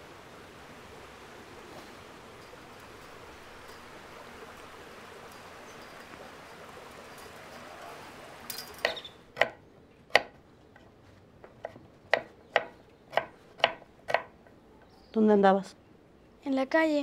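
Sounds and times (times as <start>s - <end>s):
outdoor hiss: 0.0s - 17.0s
knife chopping on board: 11.6s - 14.3s.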